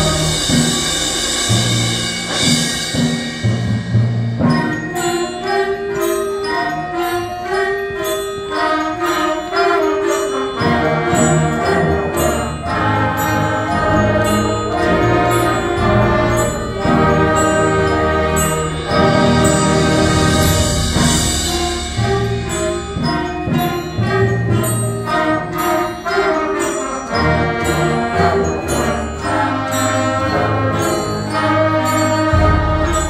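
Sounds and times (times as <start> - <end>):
low brass: 0.0 - 2.8, 12.7 - 22.4
bell-like percussion strikes: 0.0 - 33.0
concert band playing: 0.0 - 33.0.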